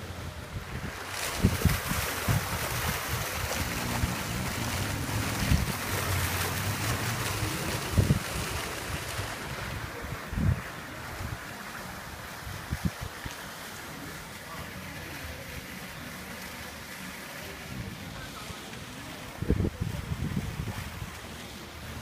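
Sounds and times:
wind buffeting microphone: 0.2 - 11.5, 12.3 - 13.2, 19.3 - 21.2.

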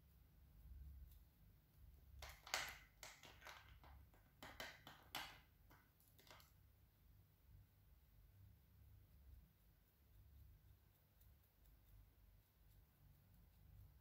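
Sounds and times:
paintbrush clicking in paint tin: 2.1 - 6.6.

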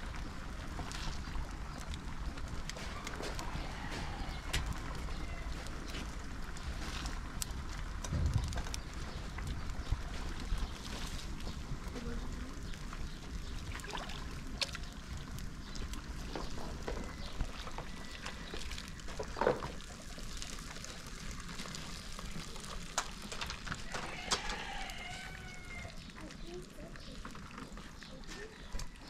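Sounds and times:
low wind rumble: 0.0 - 26.2
water splashing and pouring: 13.4 - 15.2.

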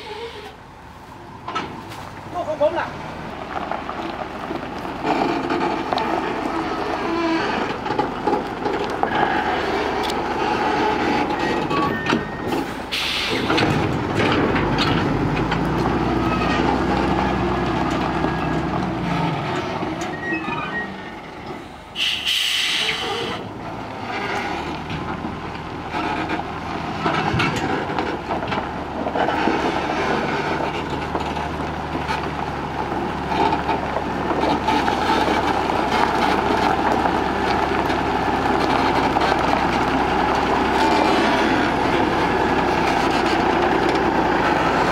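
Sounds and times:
diesel truck engine running: 0.0 - 44.9
wheels rolling over gravel: 1.8 - 12.0, 23.0 - 44.9
steel bodies rattling and knocking: 3.5 - 20.2, 24.0 - 44.9
short hiss: 22.0 - 23.3.

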